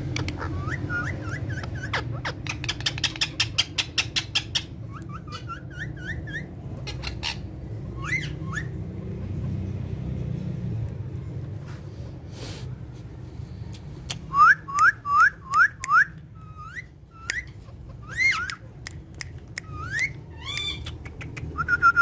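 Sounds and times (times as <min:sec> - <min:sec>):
parakeets chirping: 0:00.0 - 0:10.1, 0:15.0 - 0:22.0
loud parakeet calls: 0:00.2 - 0:09.2, 0:16.4 - 0:18.7, 0:19.7 - 0:20.9.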